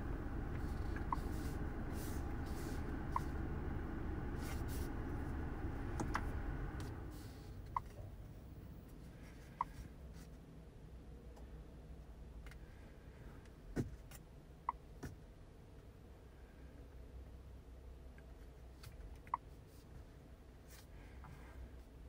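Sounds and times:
car engine idling: 0.0s - 7.8s.

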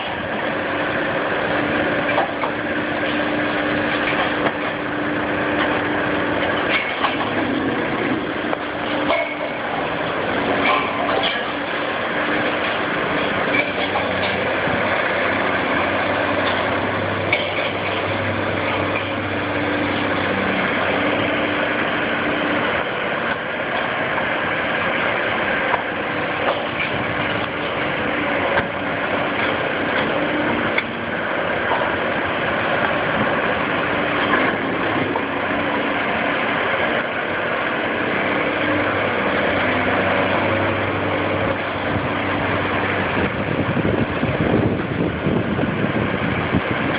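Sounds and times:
excavator diesel engine: 0.0s - 46.9s
clanks and cracks of concrete: 2.0s - 4.8s, 6.4s - 7.5s, 8.4s - 9.8s, 10.6s - 14.6s, 16.3s - 19.2s, 25.6s - 27.8s.

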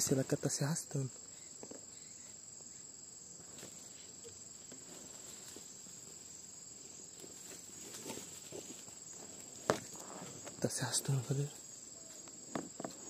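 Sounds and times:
crickets trilling: 0.0s - 13.0s
soft rustles and ticks: 3.4s - 6.2s, 7.0s - 13.0s.

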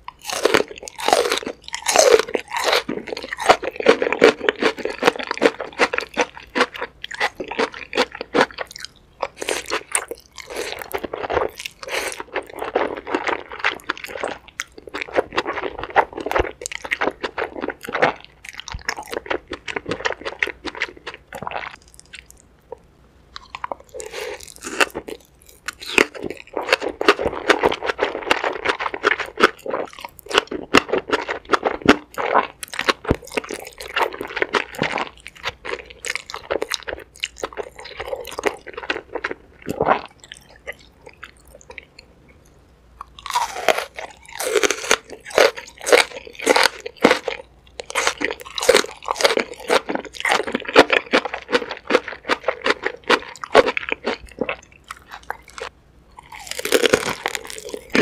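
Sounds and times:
wet crunchy chewing: 0.0s - 42.1s, 43.0s - 58.0s.

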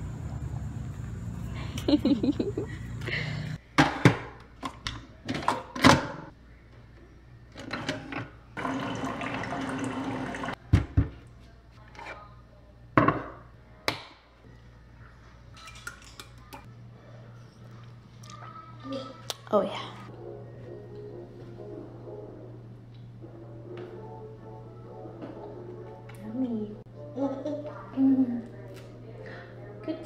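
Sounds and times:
coffee maker hissing: 8.6s - 10.6s.

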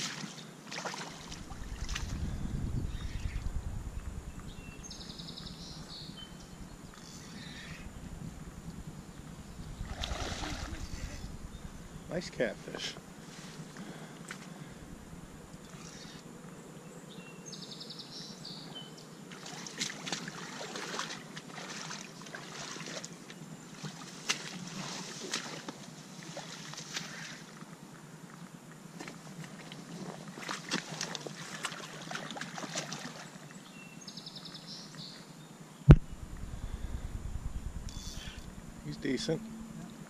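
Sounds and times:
splashing at water's edge: 0.0s - 2.2s, 9.8s - 11.3s, 19.3s - 23.2s, 30.3s - 33.3s
outdoor hiss: 2.9s - 16.2s, 35.8s - 39.4s.

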